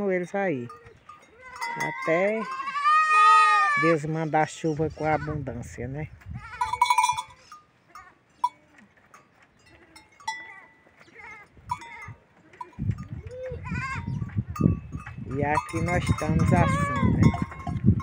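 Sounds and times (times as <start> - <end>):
goat kids bleating: 0.8 - 4.0, 6.2 - 8.8, 9.7 - 14.4, 15.8 - 17.8.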